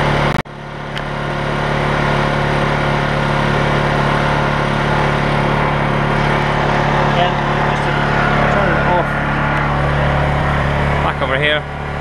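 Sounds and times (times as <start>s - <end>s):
generator engine humming: 0.0s - 12.0s.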